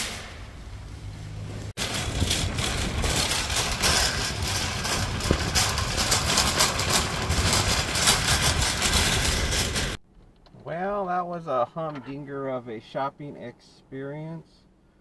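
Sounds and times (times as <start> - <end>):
vehicle engine and road noise: 0.0 - 10.4.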